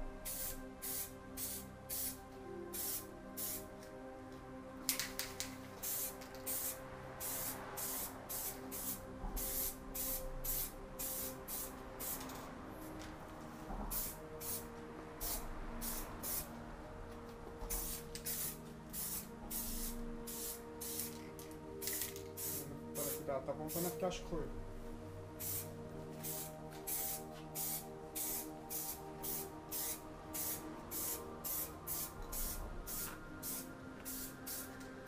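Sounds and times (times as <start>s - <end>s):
spray can hissing bursts: 0.3s - 3.7s, 5.8s - 12.3s, 13.9s - 14.6s, 15.2s - 16.5s, 17.7s - 21.2s, 21.8s - 24.0s, 25.4s - 34.8s.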